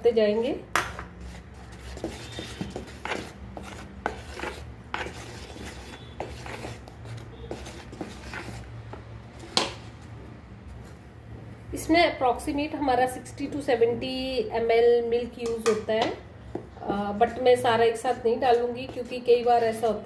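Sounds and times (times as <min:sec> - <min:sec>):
spatula scraping batter in bowl: 0:01.0 - 0:09.8, 0:17.3 - 0:20.0.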